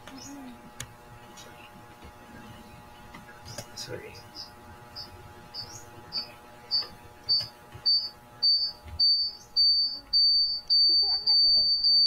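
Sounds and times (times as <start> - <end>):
high-pitched electronic beeping: 4.9 - 12.0.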